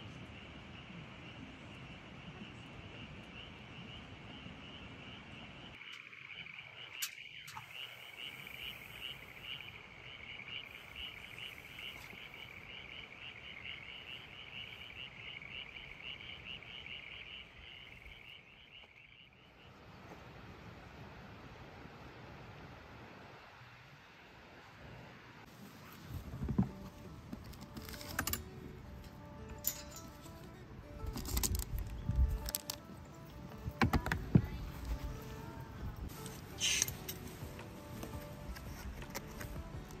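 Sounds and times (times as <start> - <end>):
frogs calling: 0.2 - 19.8.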